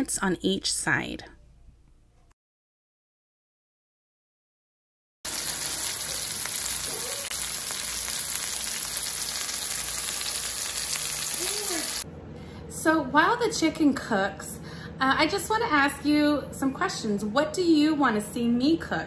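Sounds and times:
chicken sizzling in a skillet: 5.3 - 12.0.

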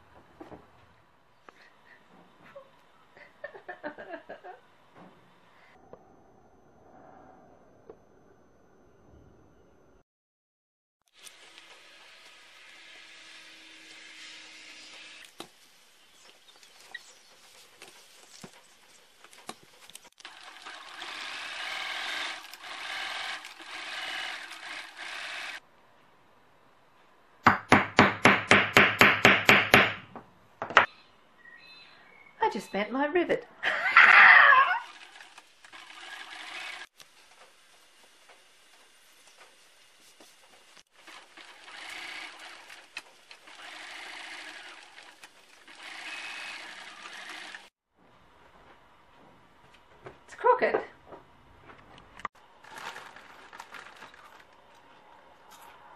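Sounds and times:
sewing machine stitching: 20.2 - 25.6, 34.8 - 36.9, 40.9 - 47.7.

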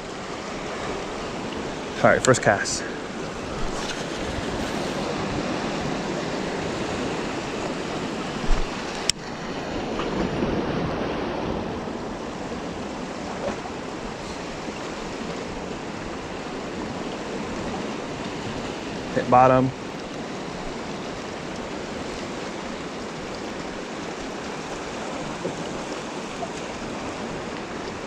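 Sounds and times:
ocean surf washing around rocks: 0.0 - 28.0.

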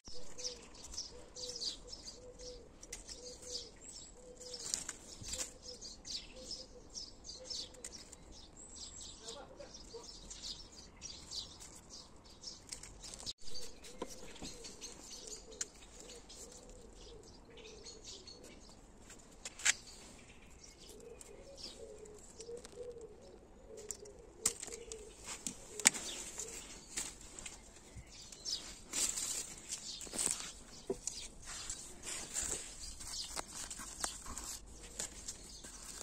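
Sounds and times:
small birds chirping: 0.0 - 36.0
pigeon cooing: 0.1 - 8.0, 13.5 - 18.5, 20.9 - 26.9
pruning shears snipping: 23.8 - 27.6.

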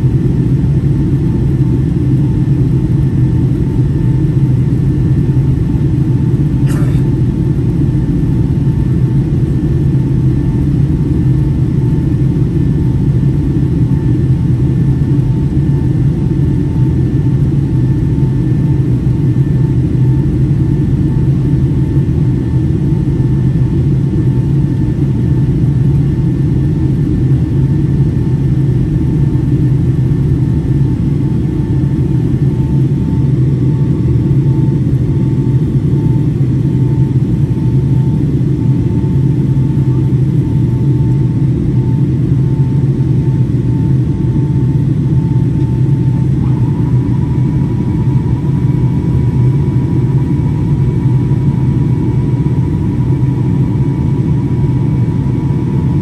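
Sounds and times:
airplane cabin roar: 0.0 - 56.0
faint whine: 26.4 - 56.0.

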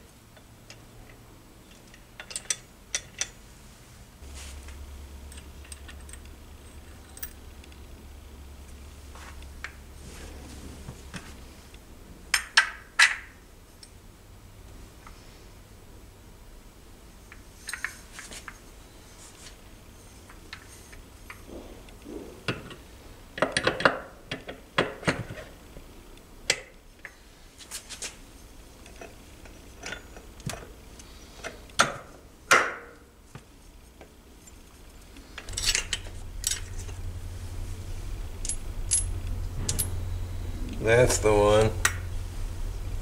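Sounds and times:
low hum: 34.4 - 43.0
metal gears clinking: 38.4 - 40.1.

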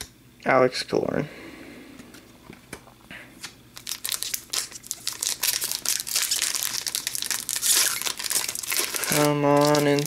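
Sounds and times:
card pack wrapper crinkling: 3.7 - 10.0.

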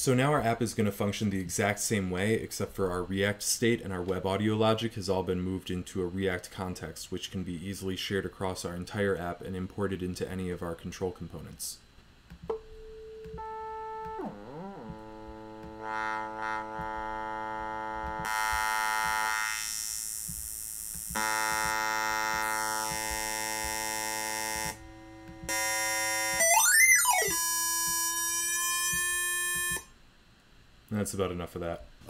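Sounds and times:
synthesizer sawtooth tone: 12.5 - 29.9.

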